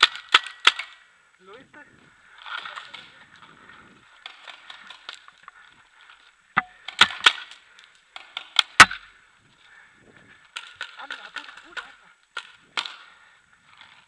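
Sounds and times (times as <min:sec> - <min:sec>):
paintball marker firing: 0:08.4 - 0:09.0.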